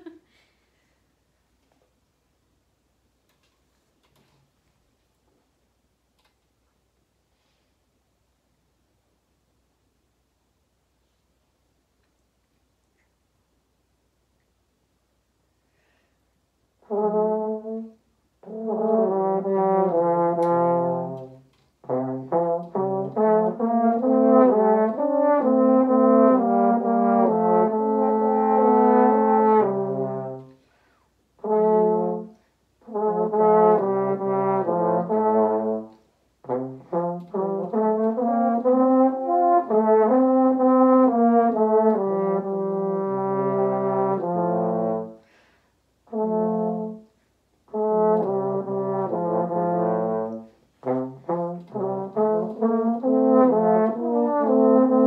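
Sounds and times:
french horns duet: 16.8s - 55.0s.

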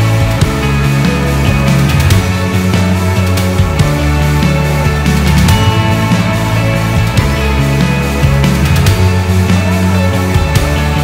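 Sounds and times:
heavy rock music: 0.0s - 11.0s.

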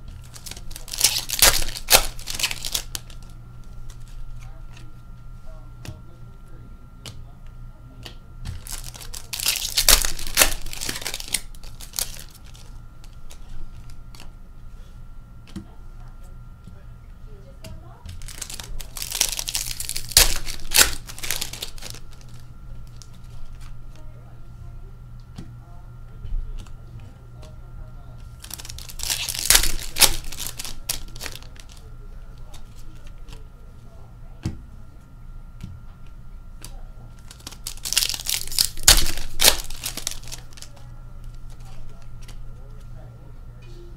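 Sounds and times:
cards clicking and rustling: 0.1s - 4.9s, 8.0s - 14.3s, 18.1s - 23.8s, 28.4s - 33.4s, 36.6s - 42.9s
card pack wrappers crinkling: 0.2s - 4.2s, 8.6s - 14.3s, 18.1s - 23.8s, 28.4s - 33.0s, 37.2s - 42.4s.

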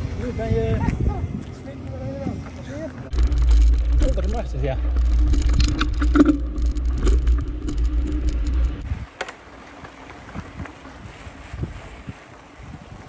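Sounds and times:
wind rumble on microphone: 0.0s - 9.2s, 10.2s - 13.0s
bike rattling and clicking: 2.9s - 11.0s.

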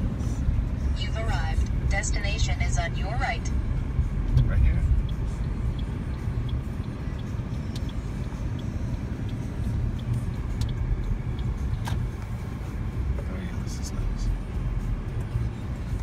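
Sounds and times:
engine and tyre rumble: 0.0s - 16.0s
faint regular ticking: 1.3s - 13.3s.

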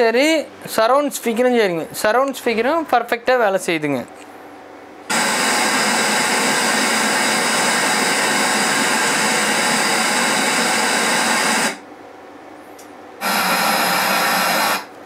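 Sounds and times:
test noise hiss from speaker: 0.0s - 4.4s.

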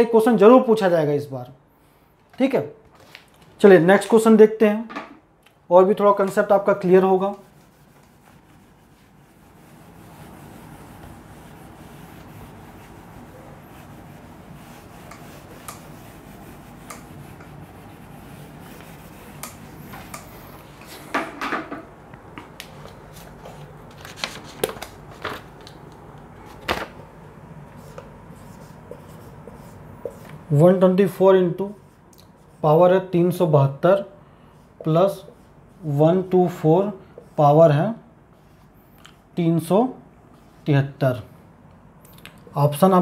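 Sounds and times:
eraser scrubbing a whiteboard: 6.0s - 21.1s, 27.2s - 33.8s, 34.5s - 41.0s
knocks against whiteboard: 21.1s - 21.9s.

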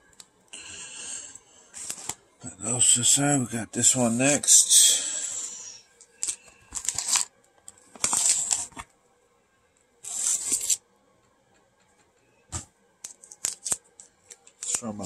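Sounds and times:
padded mailer tearing: 6.2s - 7.3s, 8.0s - 8.8s, 10.1s - 10.8s.

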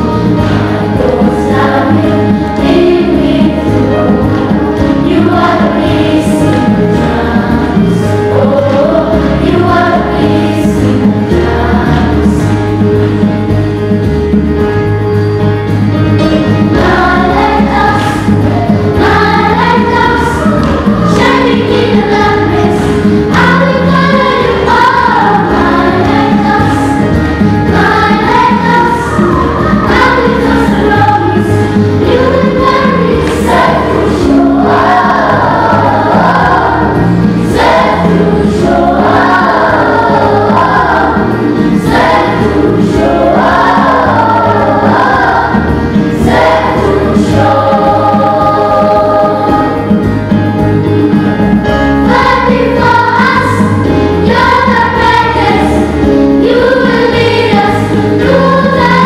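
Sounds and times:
children's choir singing: 0.0s - 59.0s.

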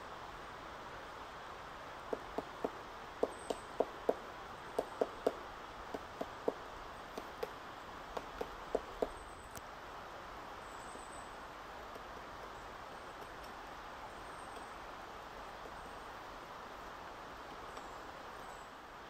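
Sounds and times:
woodpecker pecking wood: 2.0s - 9.2s.

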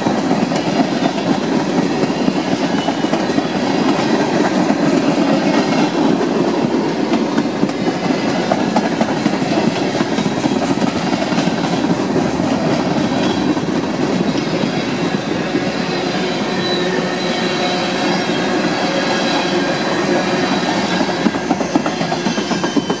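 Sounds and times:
clickety-clack over rail joints: 0.0s - 17.0s, 18.0s - 23.0s
freight train wheels rumbling: 0.0s - 23.0s
high wheel squeal: 2.1s - 3.9s, 14.3s - 23.0s.

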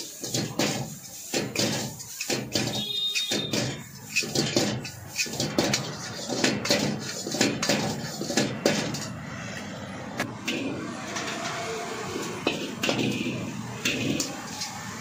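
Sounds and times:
ladle scraping a wok: 0.0s - 15.0s.

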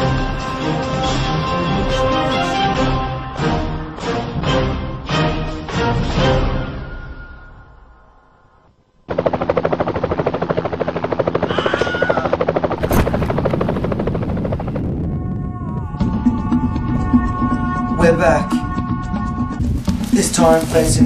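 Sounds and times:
helicopter rotor chop: 9.1s - 15.2s.

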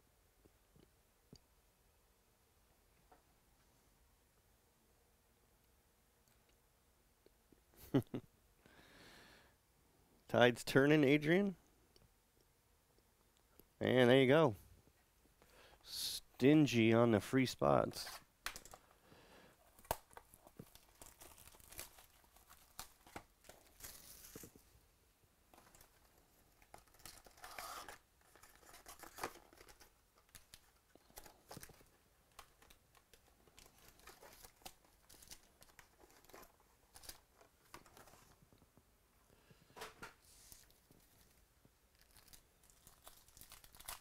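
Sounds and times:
plastic wrap and foil crinkling: 19.6s - 24.7s, 25.5s - 38.4s, 40.3s - 44.0s.

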